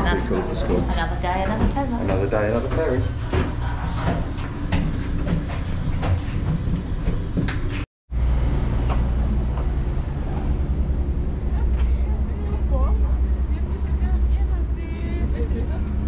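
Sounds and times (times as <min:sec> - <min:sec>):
ferry engine low rumble: 0:08.1 - 0:16.0.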